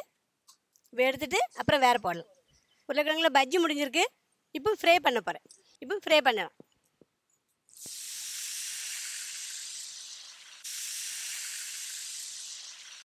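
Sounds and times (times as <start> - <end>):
potato sticks sizzling in oil: 7.7 - 13.0.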